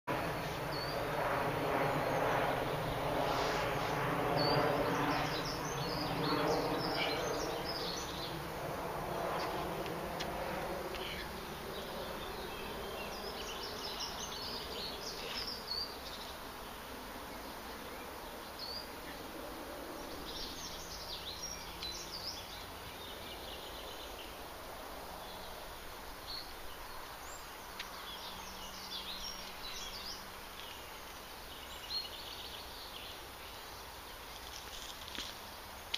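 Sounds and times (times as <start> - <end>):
buzzing drone: 0.1 - 21.7.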